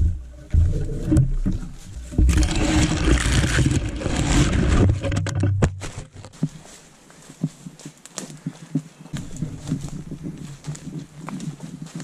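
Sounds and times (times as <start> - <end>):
branches rustling: 0.2 - 12.0
footsteps on forest floor: 5.7 - 12.0.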